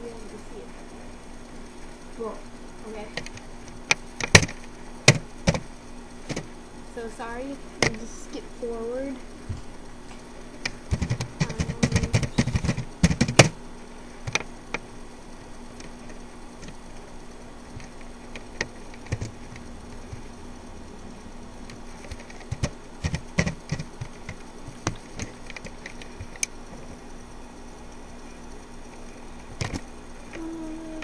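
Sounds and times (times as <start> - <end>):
faint steady hum: 0.0 - 31.0
keyboard typing: 10.6 - 13.6, 21.6 - 26.5.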